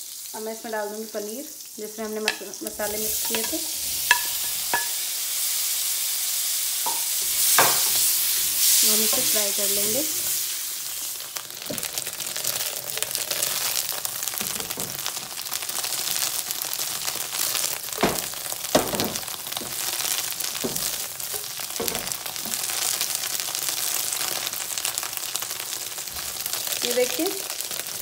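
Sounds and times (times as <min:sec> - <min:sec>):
cheese cubes sizzling in butter: 0:00.0 - 0:28.0
spatula scraping and knocking pan: 0:02.1 - 0:05.0, 0:06.9 - 0:10.4, 0:18.0 - 0:22.8.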